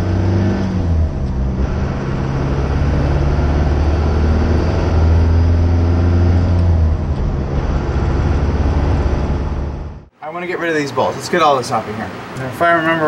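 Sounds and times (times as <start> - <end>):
diesel truck engine accelerating: 0.0 - 10.1.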